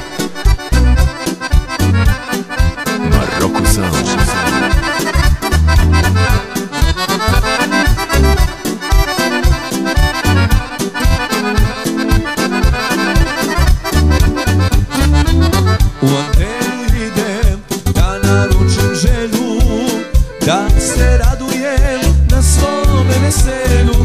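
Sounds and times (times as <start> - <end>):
accordion: 0.0 - 24.0
bass: 0.0 - 24.0
drum beat: 3.0 - 5.9, 16.0 - 17.1.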